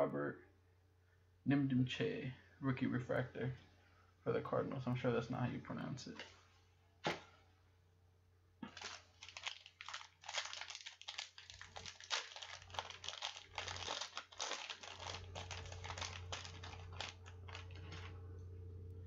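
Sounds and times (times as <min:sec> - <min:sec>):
foil wrapper crinkling: 0:08.6 - 0:18.2.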